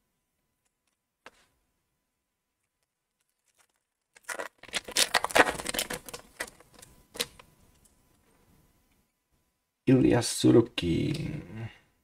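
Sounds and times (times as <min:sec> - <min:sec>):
foil wrapper crinkling and tearing: 0:03.1 - 0:07.4.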